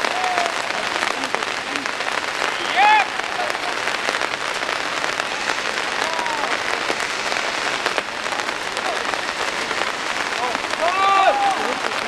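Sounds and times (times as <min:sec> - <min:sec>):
hissing noise with crackles: 0:00.0 - 0:12.0
faint distant shout: 0:10.4 - 0:12.0.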